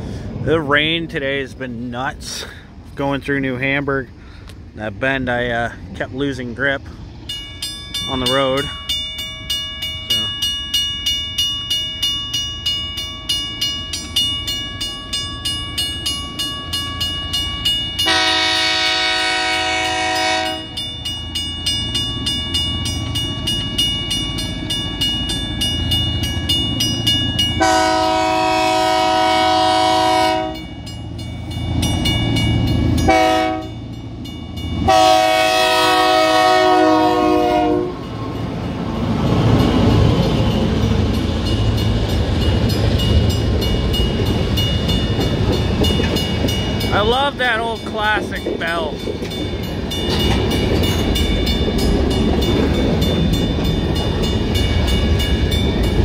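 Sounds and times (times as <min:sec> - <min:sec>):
diesel locomotive rumble: 0:00.0 - 0:56.0
crossing bell ringing: 0:05.3 - 0:56.0
train horn blasts: 0:18.0 - 0:20.8, 0:27.6 - 0:30.7, 0:33.0 - 0:33.8, 0:34.8 - 0:38.1.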